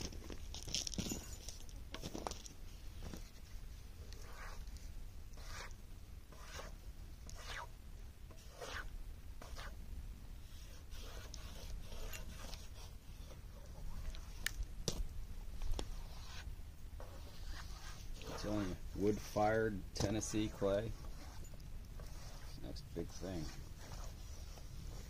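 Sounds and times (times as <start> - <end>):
low steady rumble: 0.0 - 25.0
stick scraping wet clay on metal: 17.0 - 24.1.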